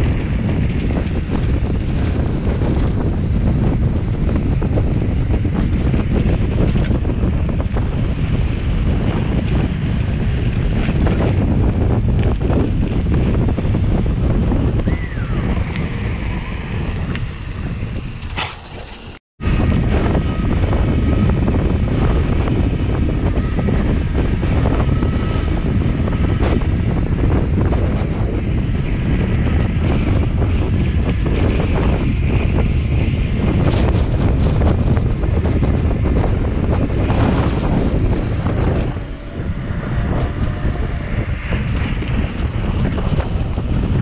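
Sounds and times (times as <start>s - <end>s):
wind buffeting microphone: 0.0s - 44.0s
bike clicks and rattles: 16.9s - 19.2s.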